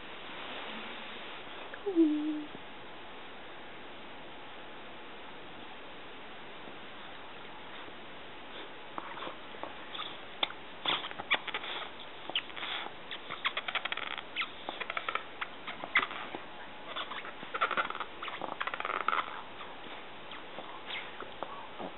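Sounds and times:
puppy nose clicks and snuffles: 0:08.6 - 0:21.9.

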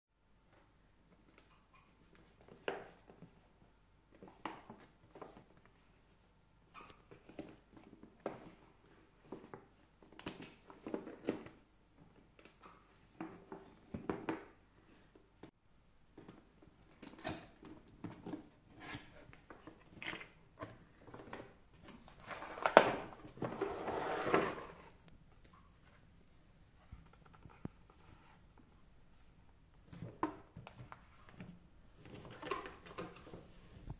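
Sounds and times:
cardboard box rustling and scraping: 0:23.2 - 0:25.0.

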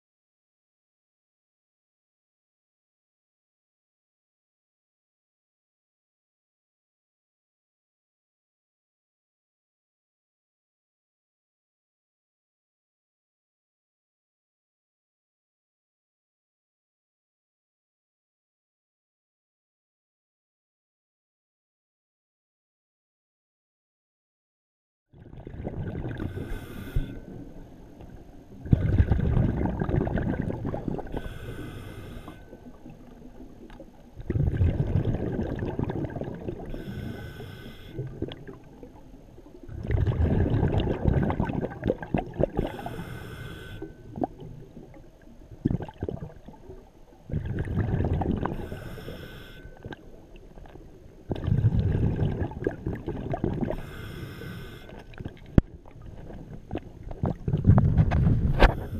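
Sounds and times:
exhaled bubbles rushing: 0:25.2 - 0:26.6, 0:28.1 - 0:31.2, 0:32.8 - 0:36.8, 0:39.6 - 0:42.9, 0:44.1 - 0:46.6, 0:47.3 - 0:48.7, 0:51.3 - 0:53.8, 0:55.1 - 0:58.9
regulator inhale hiss: 0:26.2 - 0:27.6, 0:31.0 - 0:32.8, 0:36.7 - 0:38.3, 0:42.6 - 0:44.1, 0:48.5 - 0:49.9, 0:53.7 - 0:55.2, 0:58.5 - 0:58.9.

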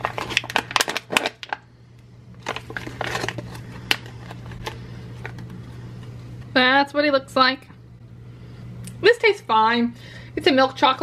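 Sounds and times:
plastic wrapper crinkling: 0:00.0 - 0:01.7, 0:02.3 - 0:06.2
steady low hum: 0:00.0 - 0:11.0.

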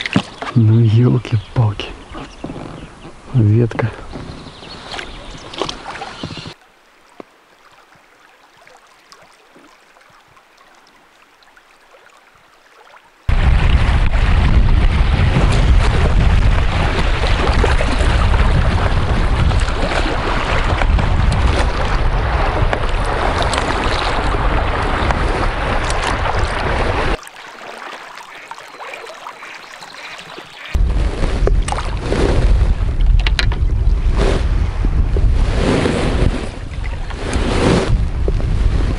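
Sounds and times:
wind buffeting microphone: 0:00.0 - 0:06.6, 0:13.3 - 0:27.2, 0:30.8 - 0:38.9
river water rushing: 0:06.5 - 0:13.3, 0:23.1 - 0:30.8.

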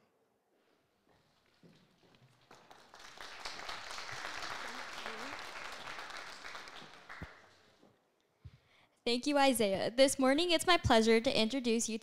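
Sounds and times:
audience applauding: 0:02.3 - 0:07.7.

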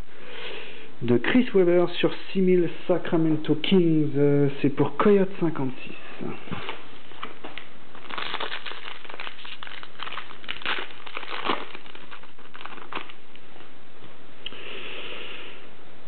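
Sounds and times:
foil wrapper crinkling: 0:06.5 - 0:13.4.

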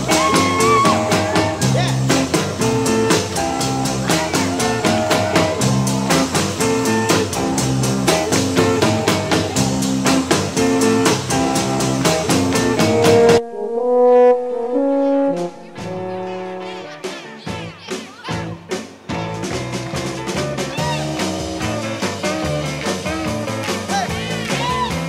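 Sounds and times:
live rock and roll music: 0:00.0 - 0:13.4, 0:15.4 - 0:25.0
sustained brass notes: 0:12.8 - 0:17.3.

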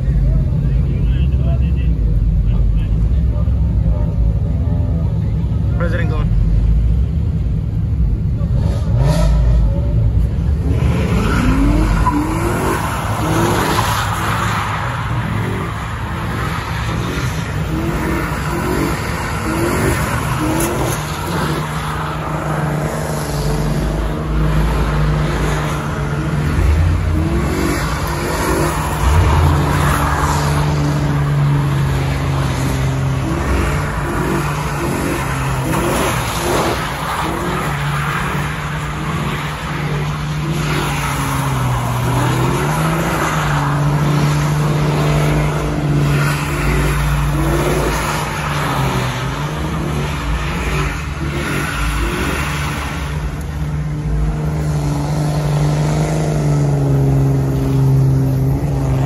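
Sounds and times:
truck engine at high revs: 0:00.0 - 0:59.0
tyres squealing on asphalt: 0:08.8 - 0:54.2.

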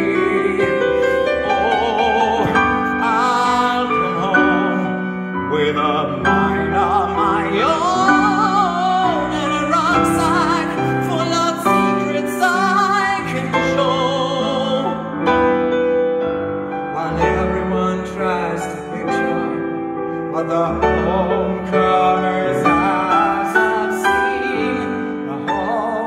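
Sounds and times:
man singing with vibrato: 0:00.0 - 0:15.4, 0:16.8 - 0:26.0
piano chords: 0:00.0 - 0:26.0.

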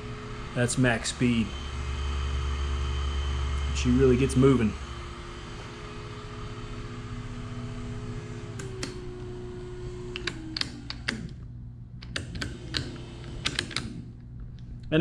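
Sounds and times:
electric motor humming whine: 0:00.0 - 0:11.4.

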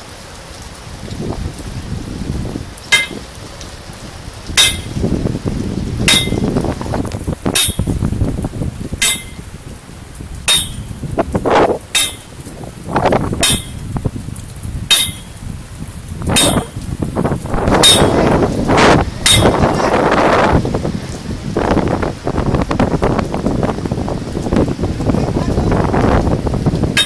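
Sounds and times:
rain: 0:00.0 - 0:27.0
wind noise: 0:00.8 - 0:27.0
sharp metallic clinks: 0:02.9 - 0:03.2, 0:04.6 - 0:05.0, 0:07.6 - 0:08.0, 0:09.0 - 0:09.5, 0:10.5 - 0:11.0, 0:12.0 - 0:12.4, 0:13.4 - 0:13.9, 0:14.9 - 0:15.4, 0:16.4 - 0:16.8, 0:17.8 - 0:18.3, 0:19.2 - 0:19.7.

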